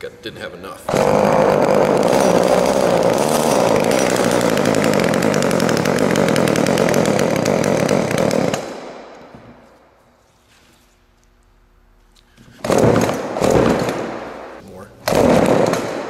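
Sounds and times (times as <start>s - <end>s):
chainsaw engine running: 0.9s - 8.7s.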